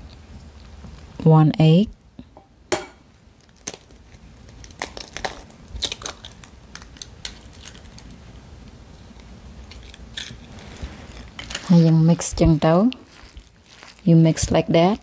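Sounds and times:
eggshell cracking: 0:03.4 - 0:08.2
plastic glove rustling: 0:09.2 - 0:15.0.

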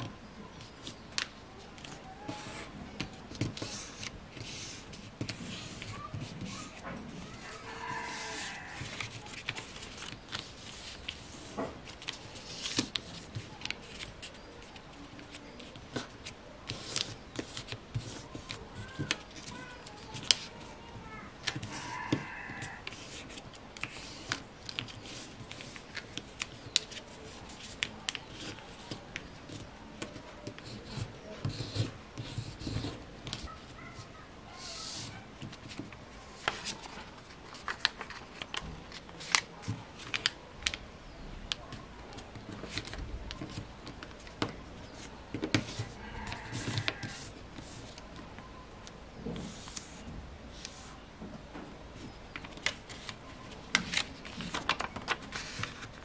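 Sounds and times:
paper rustling and sliding: 0:00.7 - 0:20.7, 0:34.6 - 0:40.8, 0:52.4 - 0:56.0
crisp paper fold clicks: 0:35.4 - 0:40.8, 0:52.3 - 0:56.0.

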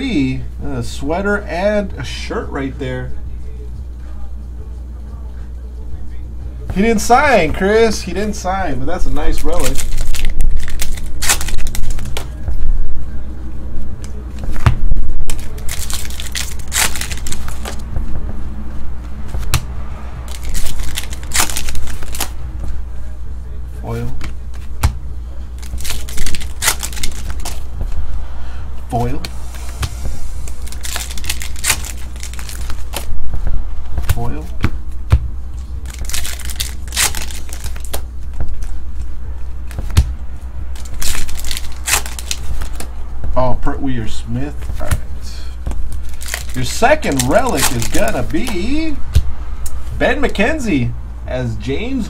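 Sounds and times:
low electrical hum: 0:00.0 - 0:52.0
foil wrapper crinkling and tearing: 0:08.9 - 0:12.3, 0:15.2 - 0:17.8, 0:20.3 - 0:22.4, 0:25.6 - 0:27.7, 0:30.4 - 0:33.1, 0:35.8 - 0:38.7, 0:40.7 - 0:42.9, 0:45.9 - 0:48.8
trading cards shuffling: 0:08.9 - 0:12.4, 0:14.0 - 0:18.2, 0:20.3 - 0:22.4, 0:25.6 - 0:28.0, 0:28.9 - 0:43.0, 0:45.7 - 0:48.8.

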